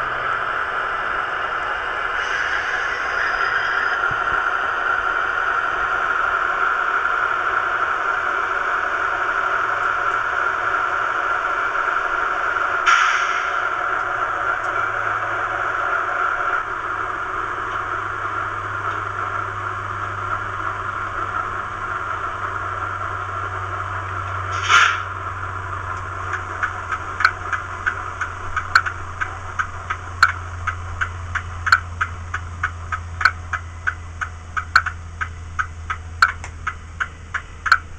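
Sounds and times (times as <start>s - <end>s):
model diesel engine idling: 0.0s - 37.9s
hiss of air: 2.0s - 5.2s, 12.8s - 13.8s, 24.5s - 25.2s
regular ticking: 25.2s - 37.9s.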